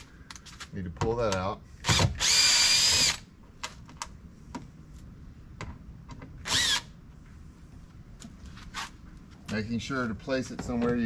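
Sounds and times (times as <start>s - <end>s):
cordless drill whine: 1.9s - 3.2s, 6.4s - 6.9s.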